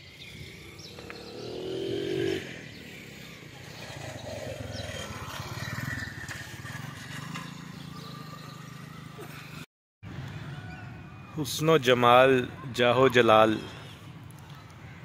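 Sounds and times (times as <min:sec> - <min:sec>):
street noise: 0:00.0 - 0:15.0
small vehicle engine running: 0:02.7 - 0:09.6.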